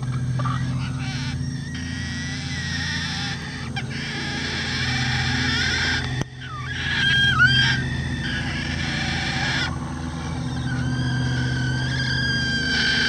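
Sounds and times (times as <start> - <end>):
rooster alarm call: 0.0 - 13.0
steady low hum: 0.0 - 13.0.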